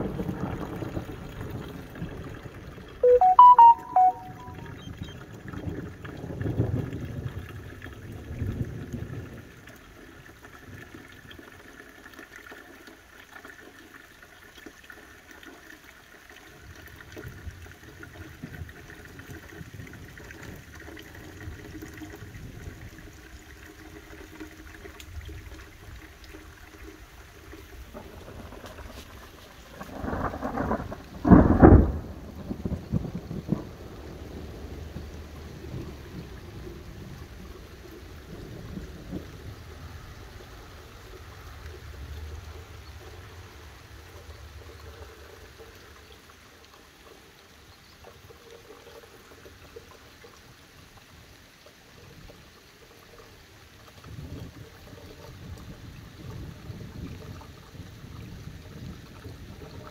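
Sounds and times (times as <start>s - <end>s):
short loud pitched sound: 3.0s - 4.7s
distant thunder rumbling: 27.9s - 37.6s.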